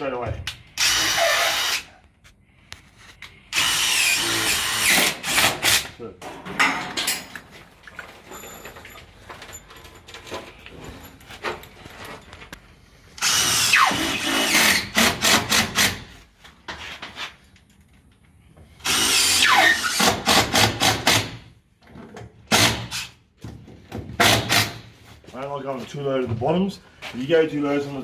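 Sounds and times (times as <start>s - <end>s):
cordless drill driving screws: 0.8s - 1.9s, 3.5s - 5.9s, 13.2s - 16.0s, 18.8s - 21.4s.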